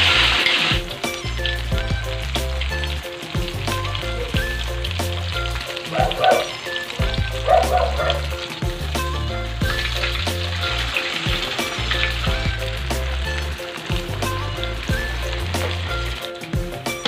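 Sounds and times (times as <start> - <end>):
background music: 0.0 - 17.0
pork sizzling in hot oil: 0.0 - 17.0.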